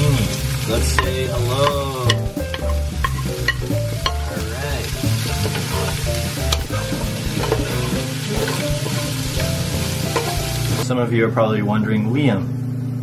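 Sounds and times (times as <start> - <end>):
vegetables sizzling in frying pan: 0.0 - 10.8
utensils knocking against pan: 0.9 - 10.8.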